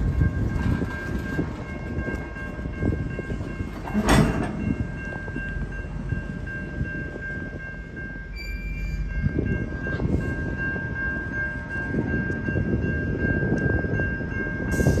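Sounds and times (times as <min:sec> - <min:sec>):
train wheels rumbling on rails: 0:00.0 - 0:15.0
freight car clanks: 0:03.7 - 0:05.2.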